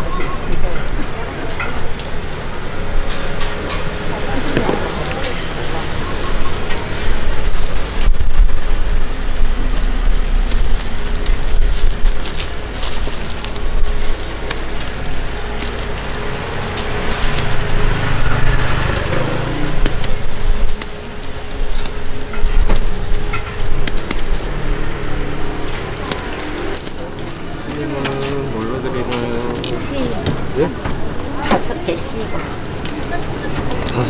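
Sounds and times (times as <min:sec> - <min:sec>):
low rumble: 0:00.9 - 0:31.4.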